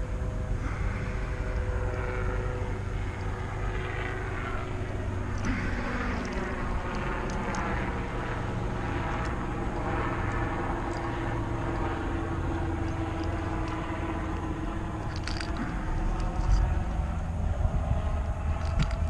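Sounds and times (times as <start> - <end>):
engine drone: 0.0 - 19.0
metal hooks clicking: 15.0 - 16.7.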